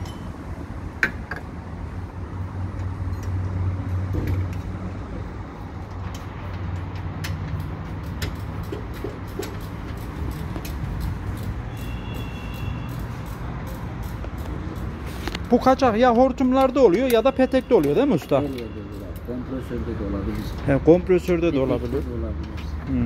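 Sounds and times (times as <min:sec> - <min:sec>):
small clicks and knocks of tools: 0:02.7 - 0:03.6, 0:05.8 - 0:11.6, 0:12.2 - 0:15.6, 0:16.5 - 0:19.3.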